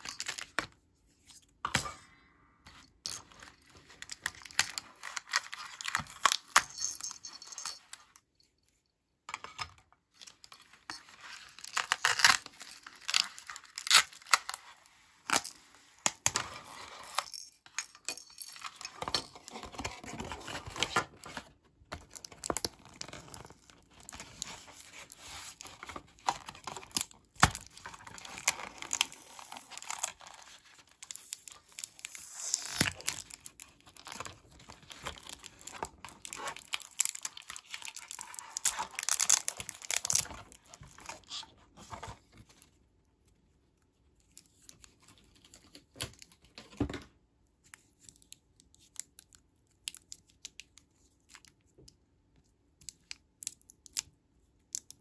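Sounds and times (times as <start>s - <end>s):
plastic packaging crinkling and tearing: 11.1s - 15.5s, 19.3s - 42.1s.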